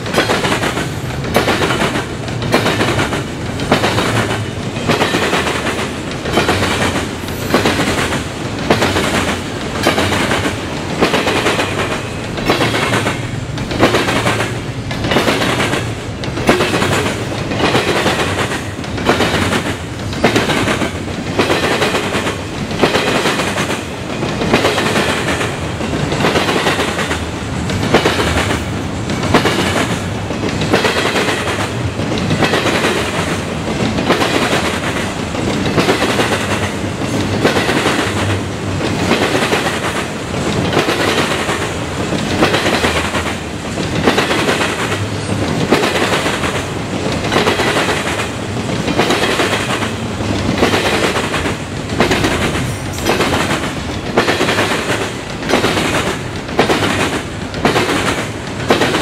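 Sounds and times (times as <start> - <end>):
train rumble: 0.0 - 59.0
train wheels clickety-clack: 0.0 - 59.0.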